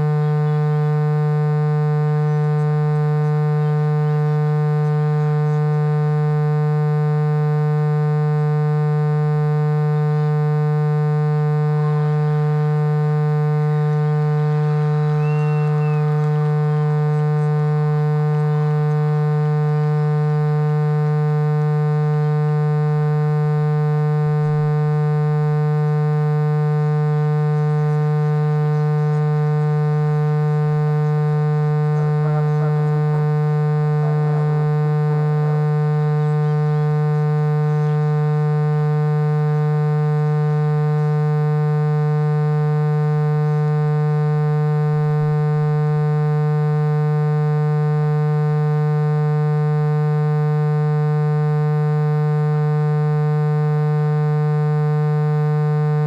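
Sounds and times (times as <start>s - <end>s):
steady electronic drone: 11.6s - 20.1s.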